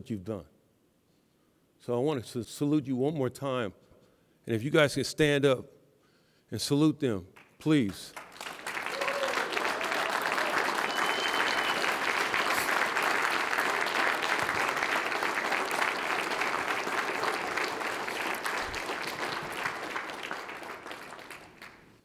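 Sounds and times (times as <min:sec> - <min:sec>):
audience clapping: 0:07.4 - 0:22.0.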